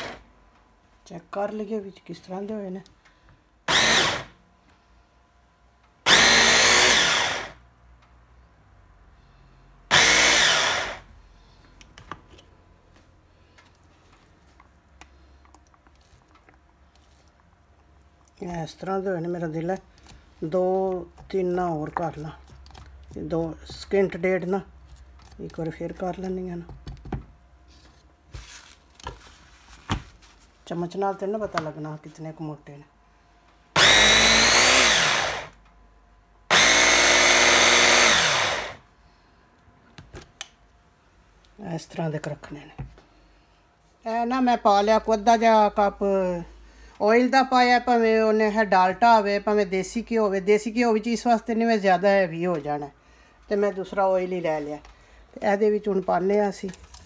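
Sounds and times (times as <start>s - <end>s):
electric food chopper whirring: 0.0s - 0.2s, 3.7s - 4.4s, 6.0s - 7.6s, 9.9s - 11.1s, 33.8s - 35.6s, 36.5s - 38.8s.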